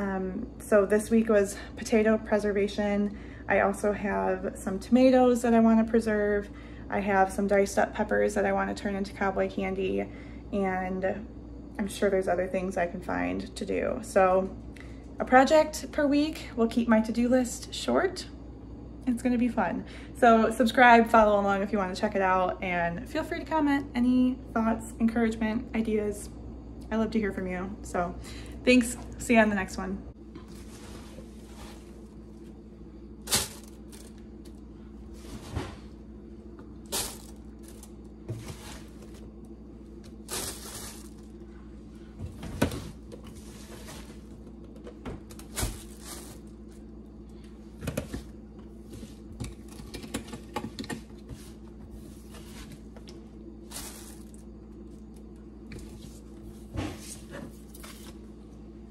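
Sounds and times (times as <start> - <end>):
steady low hum: 0.0 - 58.9
plastic bag rustling and crinkling: 30.5 - 32.6, 33.2 - 36.0, 36.8 - 41.5, 45.3 - 46.8, 53.6 - 55.2.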